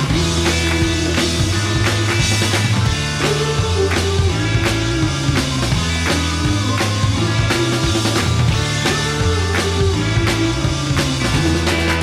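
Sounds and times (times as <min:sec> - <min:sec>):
rock music: 0:00.0 - 0:12.0.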